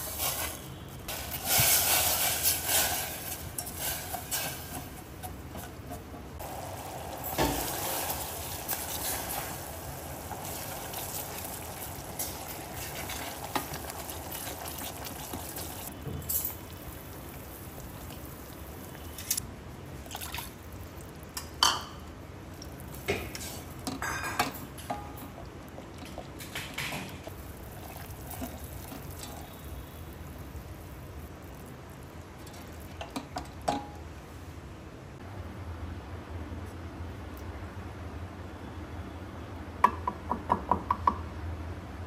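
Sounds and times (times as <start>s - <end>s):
syrup bubbling in a saucepan: 6.4s - 34.0s.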